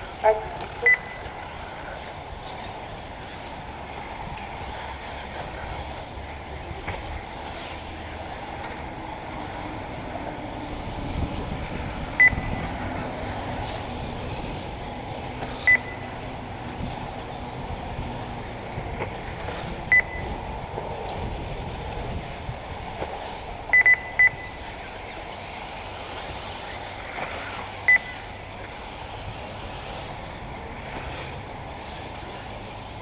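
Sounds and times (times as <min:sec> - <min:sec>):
electric rc buggies running: 0:00.0 - 0:23.7, 0:24.5 - 0:33.0
short high electronic beeps: 0:00.8 - 0:01.2, 0:12.2 - 0:12.5, 0:15.7 - 0:16.1, 0:19.9 - 0:20.3, 0:23.7 - 0:24.6, 0:27.9 - 0:28.2.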